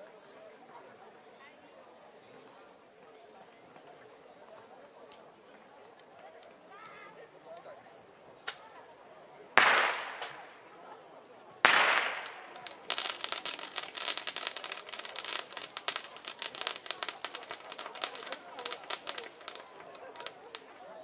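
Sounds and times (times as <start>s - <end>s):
string of firecrackers crackling: 8.3s - 21.0s
firecracker bangs: 9.6s - 10.6s, 11.6s - 20.3s.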